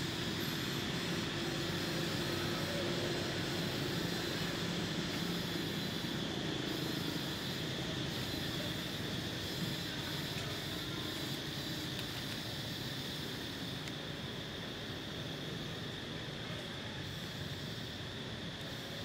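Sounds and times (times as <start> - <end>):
distant engine droning: 0.0 - 11.6.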